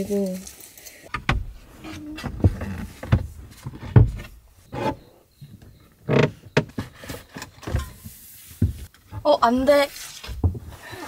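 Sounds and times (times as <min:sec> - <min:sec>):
rubbing and shuffling: 0:00.0 - 0:05.2, 0:06.6 - 0:11.0
wooden panels knocking: 0:01.1 - 0:04.4.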